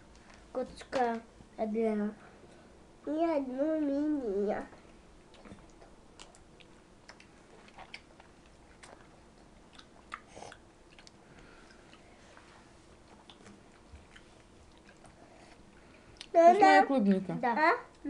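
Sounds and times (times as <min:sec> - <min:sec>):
chewing strawberries: 0:05.3 - 0:12.1, 0:13.0 - 0:16.4.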